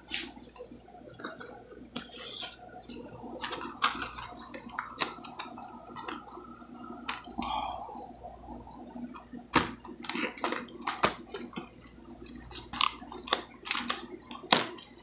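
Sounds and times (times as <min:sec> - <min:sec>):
plastic crinkling: 0:00.0 - 0:07.4, 0:09.6 - 0:15.0.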